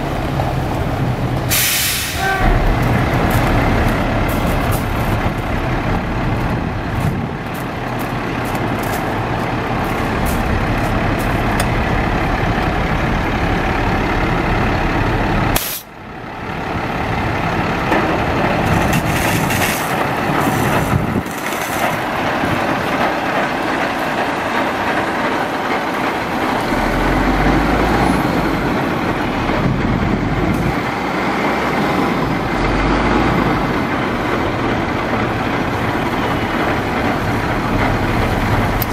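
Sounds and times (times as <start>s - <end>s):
truck engine running: 0.0s - 38.9s.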